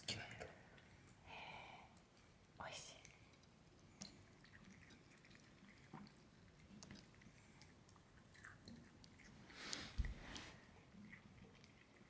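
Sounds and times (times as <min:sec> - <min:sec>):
cat chewing: 0:01.9 - 0:12.0.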